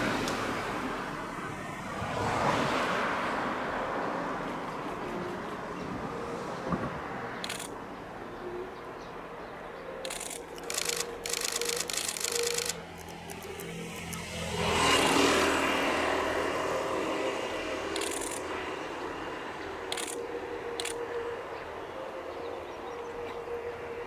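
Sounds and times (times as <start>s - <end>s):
diesel train engine drone: 0.0s - 24.0s.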